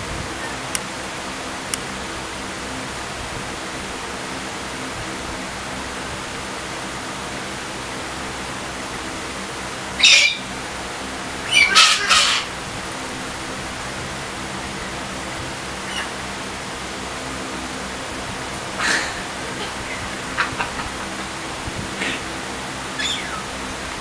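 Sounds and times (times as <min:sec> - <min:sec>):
birds screeching: 0:09.9 - 0:10.6, 0:11.4 - 0:12.6, 0:15.8 - 0:16.3, 0:18.8 - 0:23.8.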